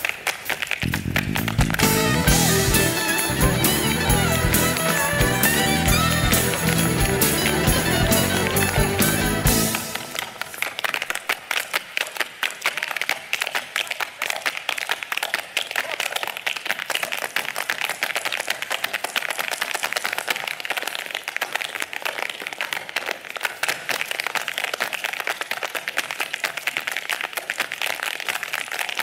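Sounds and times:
hard shoes clattering on stage: 0.0s - 11.9s.

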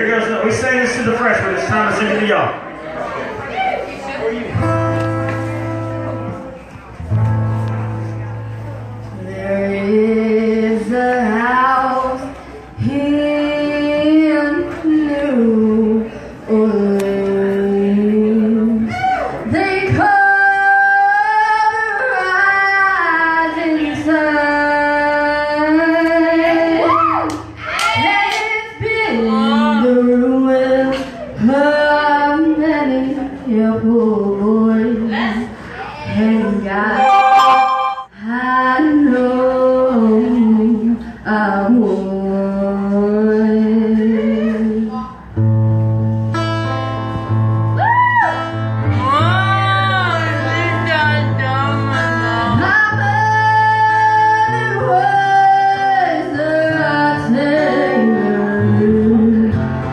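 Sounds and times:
acoustic guitar: 4.4s - 59.9s
girl singing: 9.2s - 18.7s, 19.5s - 26.8s, 52.5s - 59.5s.

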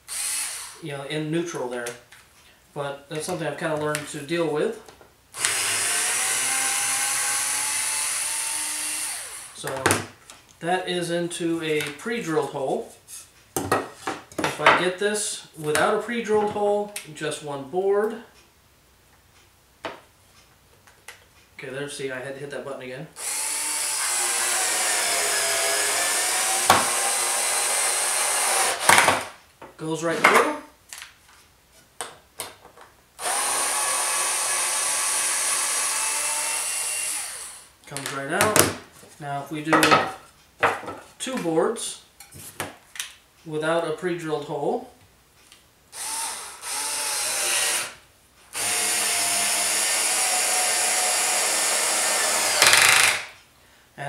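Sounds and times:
cordless screwdriver whining: 0.0s - 0.8s, 5.4s - 9.6s, 23.2s - 29.0s, 33.2s - 37.7s, 46.0s - 53.3s.

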